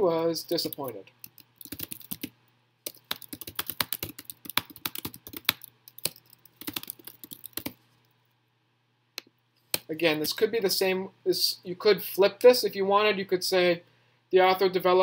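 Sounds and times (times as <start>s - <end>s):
typing on computer keyboard: 0.5s - 7.8s.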